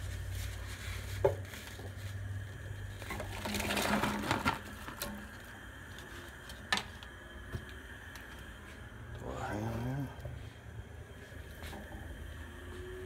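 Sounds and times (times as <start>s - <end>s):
vegetables clattering into a pot: 3.0s - 5.3s.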